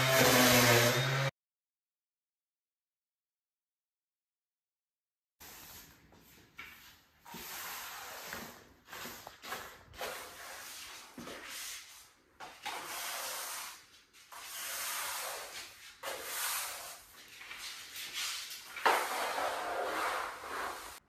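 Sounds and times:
broom sweeping wooden floor: 5.4s - 21.0s.

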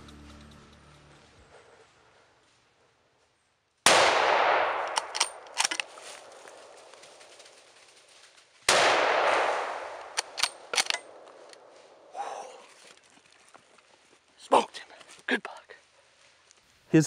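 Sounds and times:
rifle shots: 3.9s - 5.9s, 8.7s - 11.2s
sharp rifle bolt clicks: 4.8s - 6.0s, 10.0s - 11.7s.

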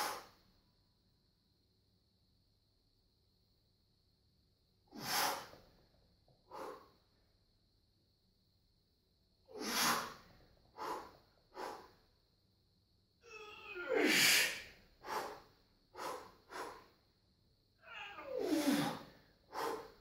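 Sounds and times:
heavy strained breathing: 6.5s - 7.0s, 9.5s - 12.0s, 13.3s - 17.0s, 18.2s - 20.0s.

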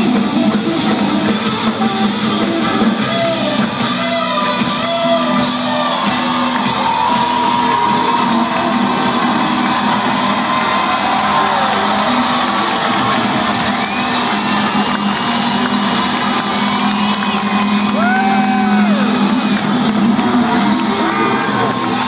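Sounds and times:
amplified rock band: 0.0s - 22.0s
crowd cheering: 0.0s - 22.0s
whoops or whistles: 3.1s - 19.3s.

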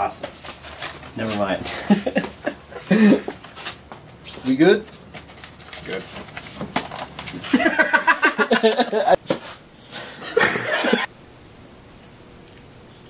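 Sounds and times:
people laughing: 1.7s - 3.4s, 7.5s - 9.2s, 10.2s - 11.1s.

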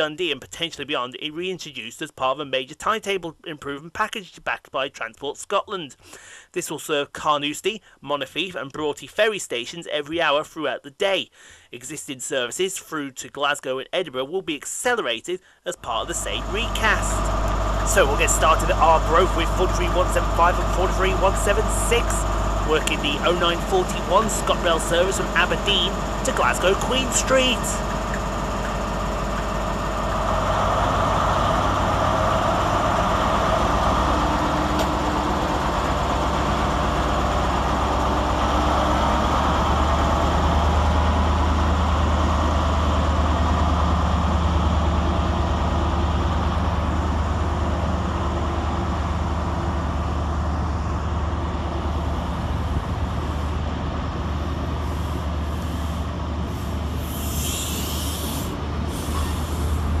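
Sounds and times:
diesel engines droning: 15.4s - 60.0s
train coaches rumbling on rails: 15.8s - 60.0s
brief high hiss: 55.1s - 59.8s.

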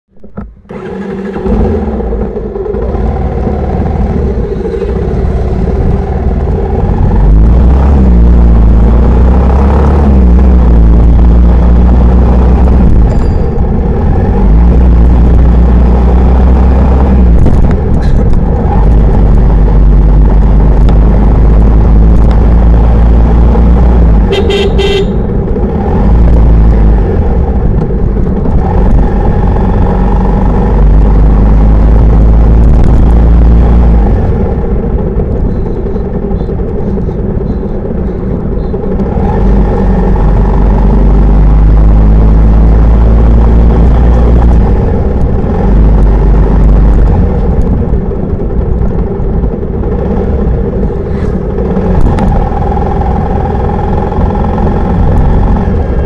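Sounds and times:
motorcycle engine running: 0.2s - 56.0s
wind rumble on microphone: 1.8s - 24.3s, 25.2s - 56.0s
vehicle horn beeping: 24.3s - 25.3s.

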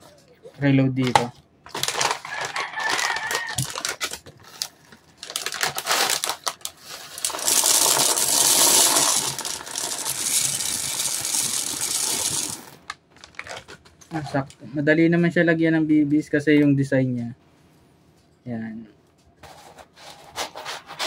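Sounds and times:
plastic pellets pouring: 4.6s - 13.6s.

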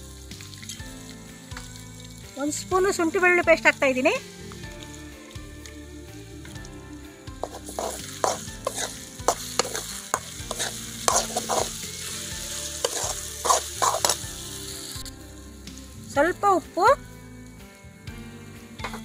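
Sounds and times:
oil sizzling: 0.0s - 19.0s
spoon scraping metal pan: 7.4s - 11.9s, 12.8s - 14.2s.

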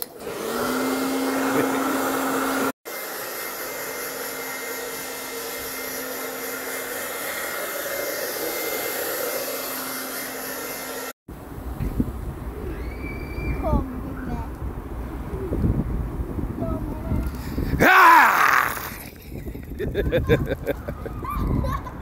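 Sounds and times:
hair dryer running: 0.0s - 11.2s.

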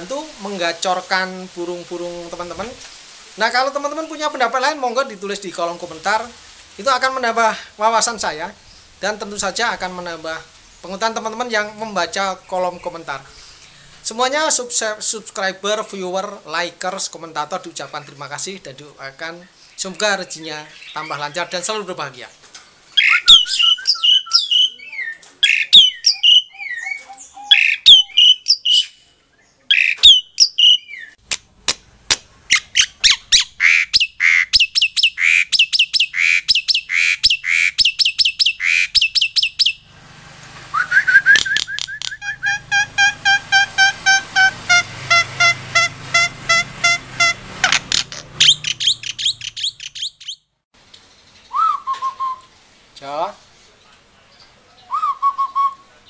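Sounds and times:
songbirds chirping and singing: 7.8s - 14.7s, 17.8s - 31.2s, 32.5s - 39.9s, 47.9s - 50.4s.

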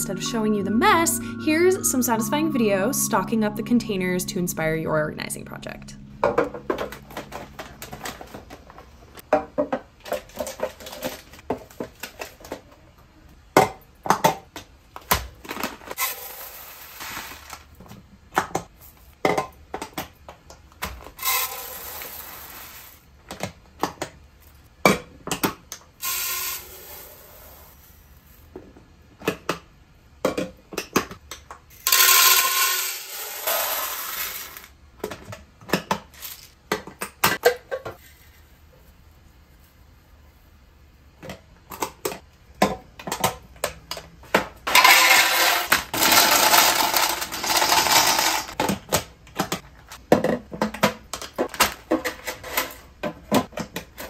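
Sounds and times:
plastic containers clicking and knocking: 45.9s - 52.3s.

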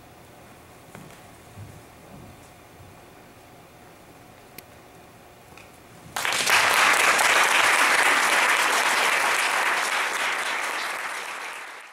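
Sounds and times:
audience applause: 6.2s - 11.9s.

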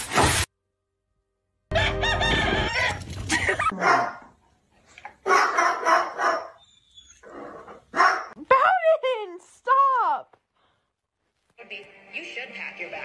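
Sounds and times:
chicken crowing: 1.7s - 3.6s.

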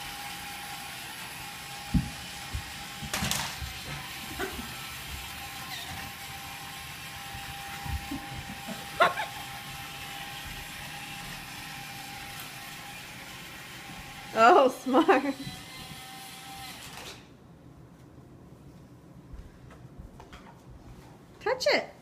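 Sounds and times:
footsteps on hardwood floor: 1.8s - 11.4s, 19.3s - 21.1s
toy car electric motor whir: 15.4s - 17.2s.

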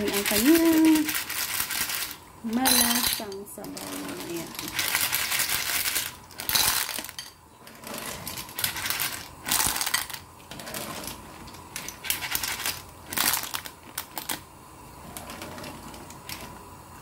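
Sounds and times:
clam shells clattering in metal strainer: 0.0s - 7.3s, 8.0s - 10.2s.

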